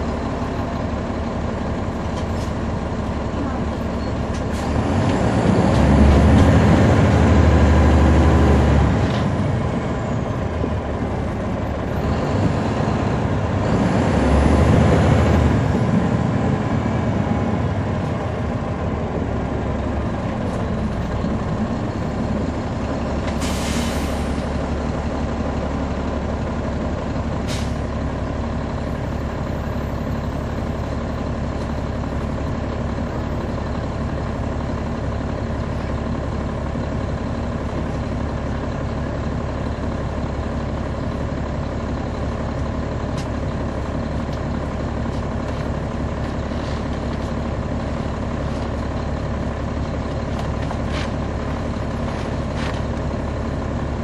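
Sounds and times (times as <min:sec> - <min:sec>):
bus diesel engine: 0:00.0 - 0:54.0
air brake hiss: 0:23.4 - 0:24.4, 0:27.5 - 0:27.8.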